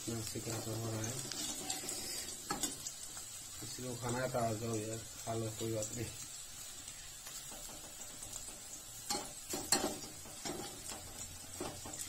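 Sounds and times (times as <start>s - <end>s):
fritters sizzling in oil: 0.0s - 12.0s
metal skimmer scraping pan: 0.6s - 2.7s.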